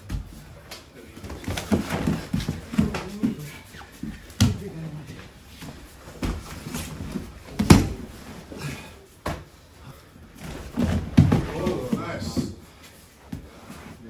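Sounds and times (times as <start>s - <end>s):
shuffling on mats: 0.0s - 14.0s
bodies thudding on mats: 1.2s - 4.8s, 5.5s - 9.6s, 10.2s - 12.7s.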